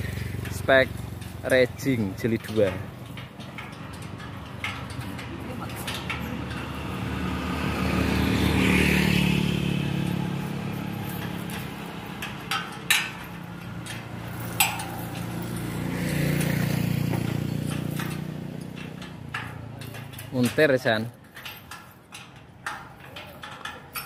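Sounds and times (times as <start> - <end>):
motorcycles passing: 0.0 - 21.2
metal truss clanks: 0.0 - 24.0.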